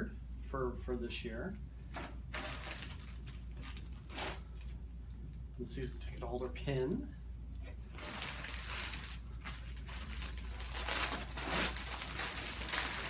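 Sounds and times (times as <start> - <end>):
plastic packaging crinkling: 2.3 - 4.8, 7.9 - 13.0.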